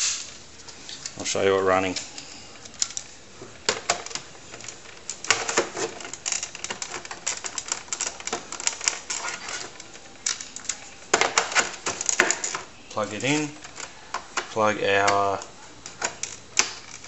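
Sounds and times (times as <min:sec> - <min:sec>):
plastic cartridge clicking and rattling: 0:03.7 - 0:12.7.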